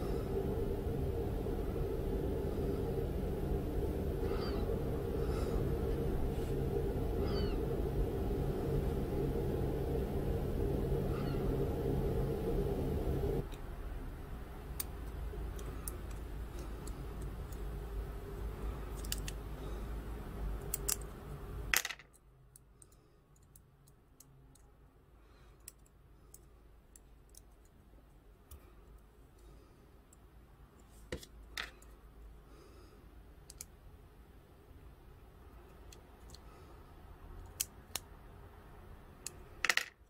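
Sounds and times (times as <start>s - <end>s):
low steady hum: 0.0s - 40.0s
small plastic parts clicking: 18.9s - 19.4s, 20.6s - 24.8s, 25.5s - 27.8s, 33.4s - 33.7s, 35.7s - 36.4s, 37.4s - 38.1s.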